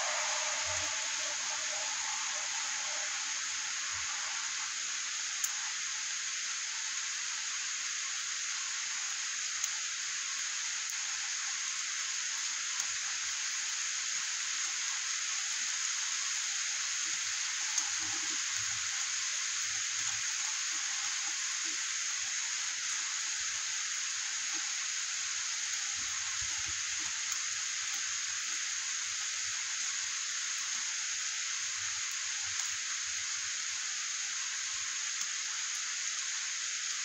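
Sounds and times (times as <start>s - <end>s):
rain on a wet street: 0.0s - 37.0s.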